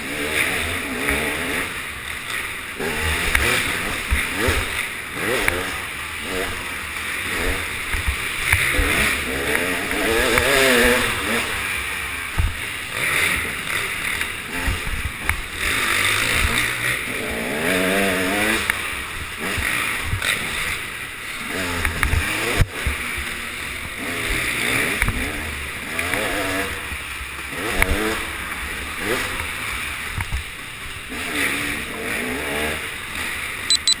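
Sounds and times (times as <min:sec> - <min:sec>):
dirt bike engine revving: 0:00.0 - 0:34.0.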